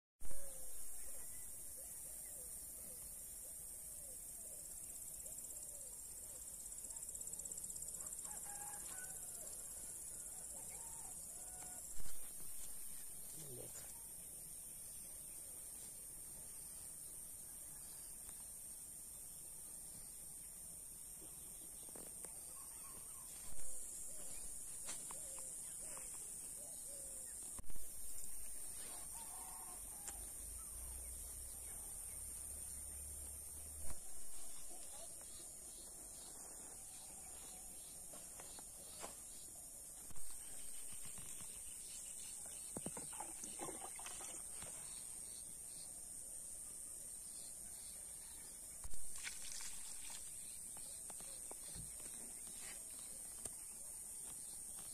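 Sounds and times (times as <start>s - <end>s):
insects trilling: 4.0s - 14.1s, 21.4s - 39.0s, 40.0s - 45.9s.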